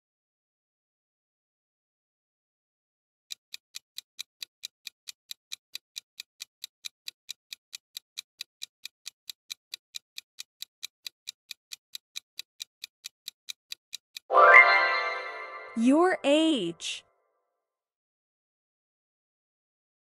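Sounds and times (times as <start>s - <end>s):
quick clock ticks: 3.3s - 14.3s.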